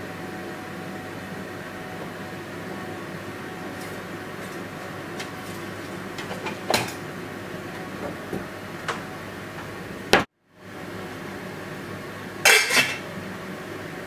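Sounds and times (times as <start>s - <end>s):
steady background hum: 0.0s - 14.0s
dishes and utensils clinking: 6.2s - 7.0s, 12.5s - 13.0s.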